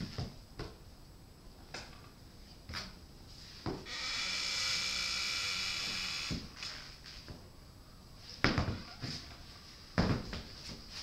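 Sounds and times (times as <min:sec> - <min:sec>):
electronic noise hiss: 0:03.8 - 0:07.2
feet thumping on floor: 0:10.0 - 0:11.0.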